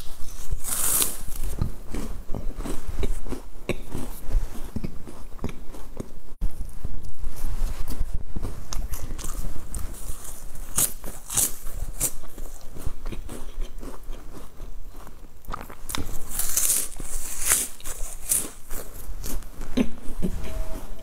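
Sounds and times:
chewing: 8.7s - 20.6s
crunching crisp snack sticks: 8.9s - 19.4s.

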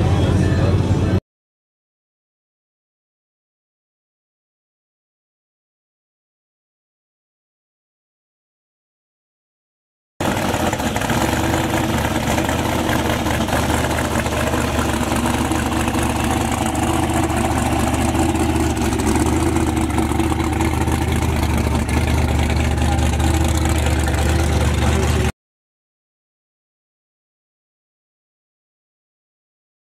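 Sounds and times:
car engine idling: 10.2s - 25.3s
car rolling away: 10.2s - 25.3s.

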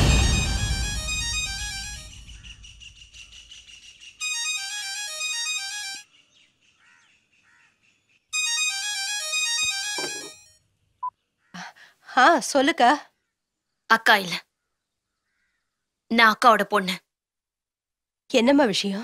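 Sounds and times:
film music: 0.0s - 2.5s, 4.2s - 6.0s, 8.4s - 10.5s
phone ringtone melody: 0.2s - 2.1s, 4.2s - 6.0s, 8.4s - 10.6s.

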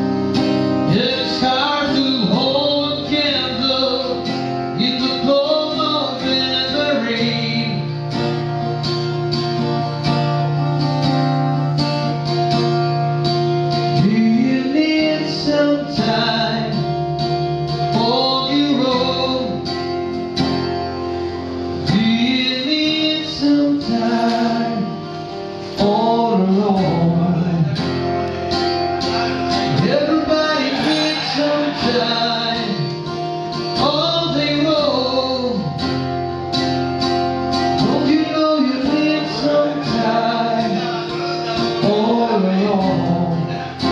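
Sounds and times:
man singing: 0.0s - 8.6s, 13.6s - 19.9s, 21.7s - 28.2s, 29.0s - 36.0s, 37.5s - 43.9s
acoustic guitar strumming: 0.0s - 43.9s.

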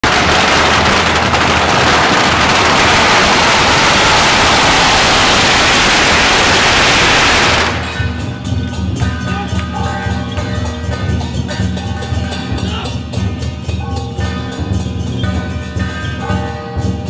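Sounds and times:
firecrackers crackling: 0.0s - 9.0s
percussion music: 7.4s - 17.0s.

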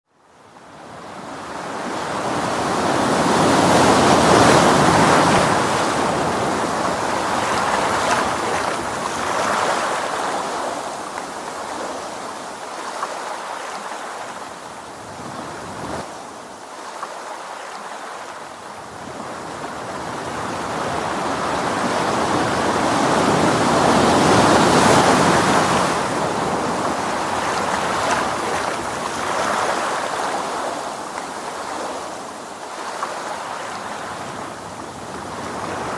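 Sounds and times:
ocean waves washing in: 0.4s - 35.9s.

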